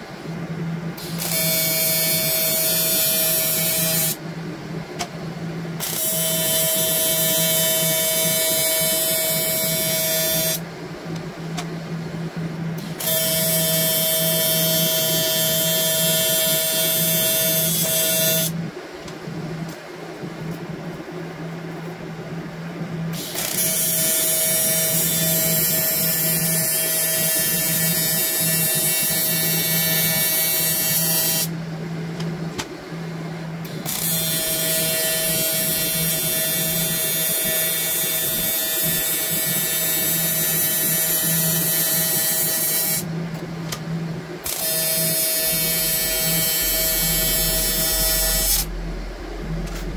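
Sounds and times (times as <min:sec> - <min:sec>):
welding arc buzzing: 0:01.0 - 0:04.2, 0:05.8 - 0:10.6, 0:12.8 - 0:18.6, 0:23.2 - 0:31.5, 0:33.7 - 0:43.1, 0:44.4 - 0:49.9.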